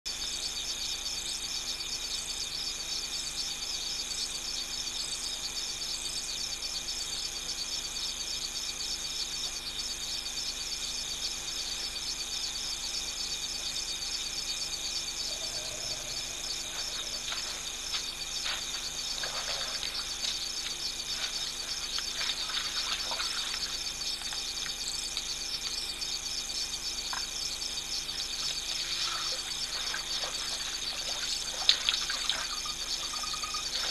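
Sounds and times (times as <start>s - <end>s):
night insects trilling: 0.1s - 33.9s
faint splashes: 21.3s - 23.8s.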